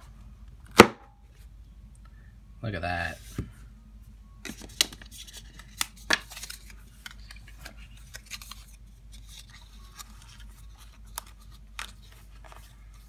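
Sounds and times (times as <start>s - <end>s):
paper and card rustling: 4.4s - 13.0s.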